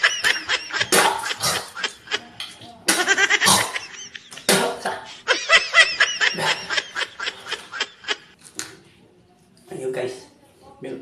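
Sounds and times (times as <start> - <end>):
laughter in quick bursts: 0.0 - 4.5, 5.1 - 8.4.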